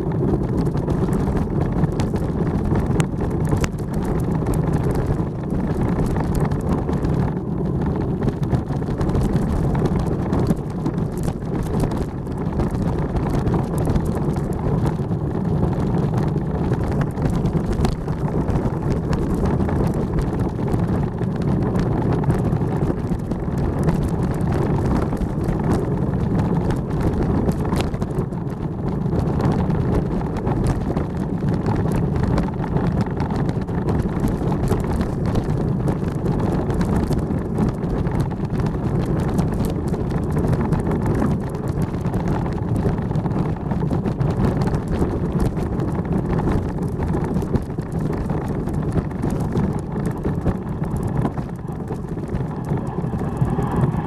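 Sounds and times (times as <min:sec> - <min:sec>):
bobsleigh runners rumbling on ice: 0:00.0 - 0:54.0
wind rushing over microphone: 0:00.0 - 0:54.0.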